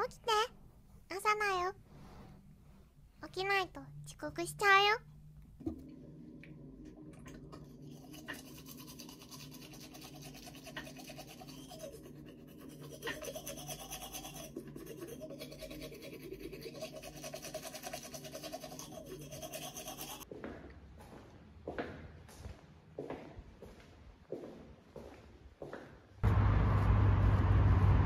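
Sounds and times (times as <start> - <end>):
toothbrush scrubbing teeth: 7.2 - 20.3.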